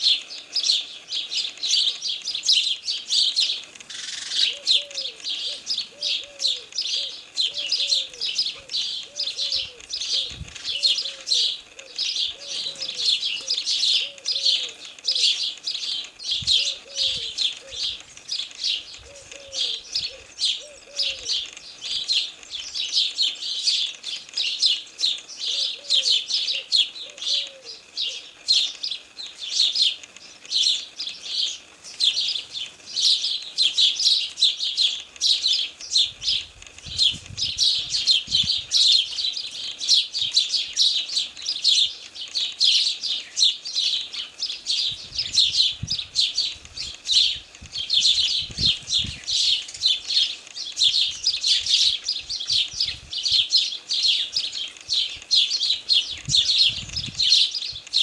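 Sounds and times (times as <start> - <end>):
sparrows chirping: 0.0 - 58.0.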